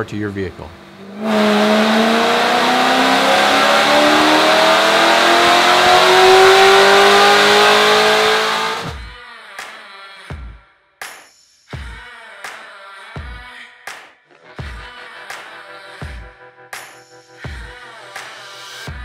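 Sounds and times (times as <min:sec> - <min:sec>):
car engine revving at full throttle: 0:00.7 - 0:09.0
music: 0:08.9 - 0:19.0.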